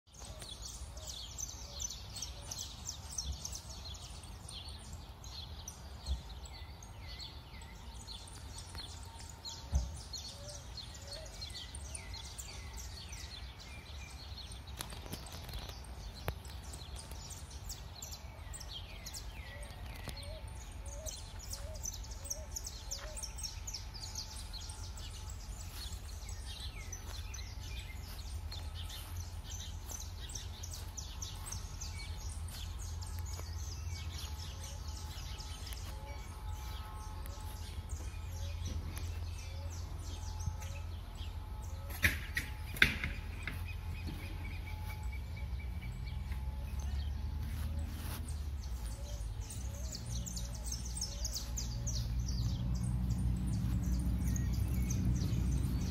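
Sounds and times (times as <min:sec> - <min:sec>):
birds calling and singing: 0:00.0 - 0:55.9.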